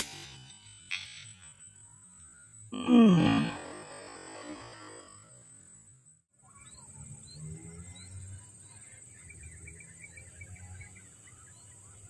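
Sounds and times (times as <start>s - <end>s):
high insect drone: 0.0s - 12.0s
small birds chirping: 6.4s - 12.0s.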